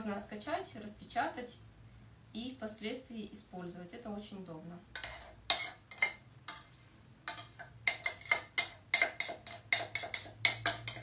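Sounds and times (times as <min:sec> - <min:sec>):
metal spoon clinking in saucepan: 0:05.0 - 0:06.2, 0:07.3 - 0:11.0.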